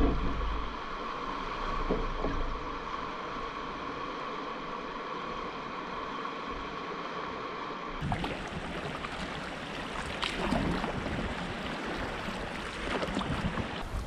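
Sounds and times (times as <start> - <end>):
wind: 0.0 - 14.0
river water rushing: 2.5 - 14.0
water splashing and lapping: 8.0 - 14.0.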